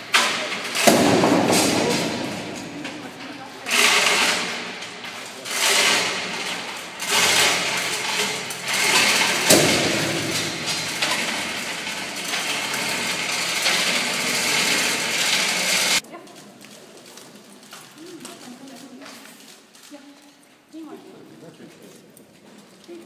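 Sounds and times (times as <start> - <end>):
hoist mechanism rattling: 0.0 - 16.0
sharp metal clank: 0.1 - 3.0, 3.7 - 16.0.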